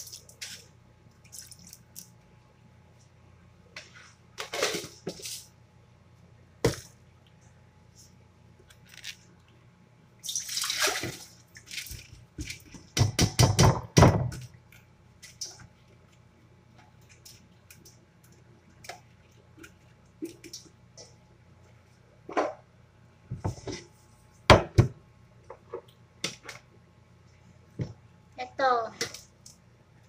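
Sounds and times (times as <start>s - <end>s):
knocks and splashes: 10.3s - 14.5s.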